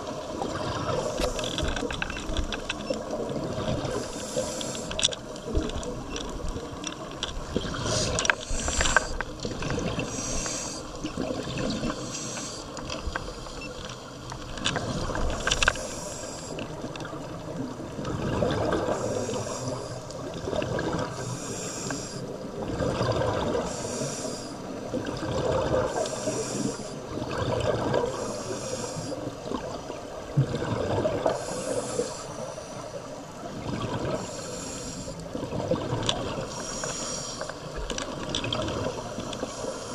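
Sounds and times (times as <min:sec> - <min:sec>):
exhaled air bubbling: 0:00.0 - 0:02.3, 0:03.1 - 0:12.0, 0:16.7 - 0:21.5, 0:22.4 - 0:28.6, 0:29.2 - 0:39.8
regulator inhale hiss: 0:03.9 - 0:05.0, 0:07.8 - 0:09.3, 0:10.0 - 0:11.0, 0:11.9 - 0:14.0, 0:15.7 - 0:16.8, 0:18.9 - 0:20.2, 0:21.2 - 0:22.4, 0:23.6 - 0:24.8, 0:25.8 - 0:27.0, 0:28.1 - 0:29.3, 0:31.3 - 0:33.2, 0:34.2 - 0:35.3, 0:36.5 - 0:37.8, 0:38.9 - 0:39.9.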